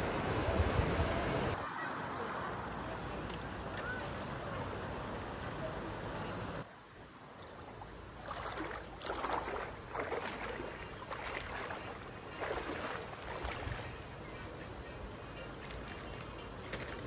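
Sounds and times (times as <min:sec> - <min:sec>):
flowing water rushing: 0:00.0 - 0:17.0
feet splashing through water: 0:07.4 - 0:14.6, 0:15.4 - 0:17.0.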